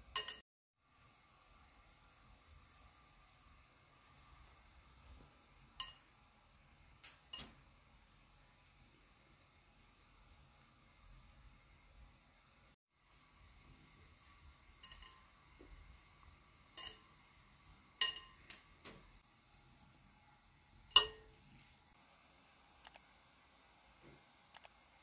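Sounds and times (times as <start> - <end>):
glass bowl clinking: 0.1 - 0.4, 5.8 - 6.1, 14.8 - 15.3, 16.6 - 17.2, 17.9 - 18.5, 20.9 - 21.4.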